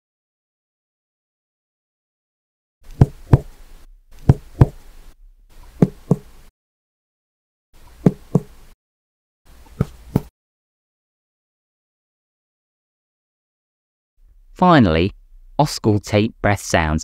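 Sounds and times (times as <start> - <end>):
finger tapping on chest: 3.0 - 3.5, 4.2 - 4.8, 5.8 - 6.2.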